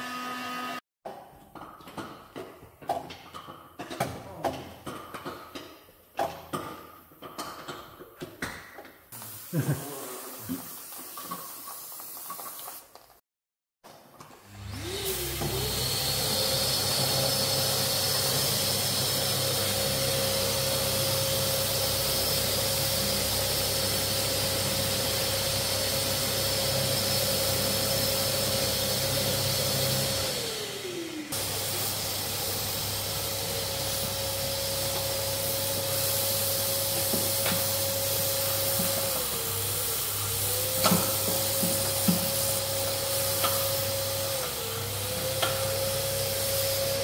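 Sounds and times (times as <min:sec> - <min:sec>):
motor-driven machine whining and hissing: 0:14.7 - 0:23.4.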